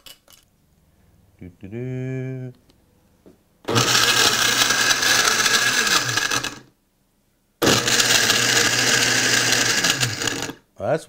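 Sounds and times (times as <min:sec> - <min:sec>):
blender motor running: 0:03.7 - 0:06.7, 0:07.6 - 0:10.6.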